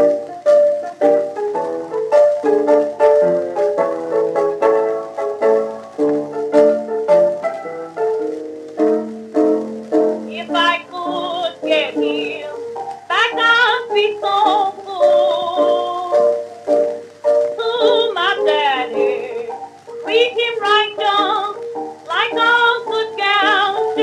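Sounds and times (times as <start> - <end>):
piano accompaniment: 0.0 - 24.0
woman singing: 10.3 - 16.4, 17.6 - 24.0.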